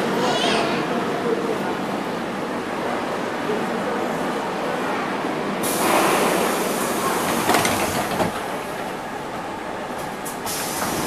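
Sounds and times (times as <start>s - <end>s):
train rumble: 0.0s - 11.0s
train door hissing: 5.6s - 8.6s, 10.2s - 11.0s.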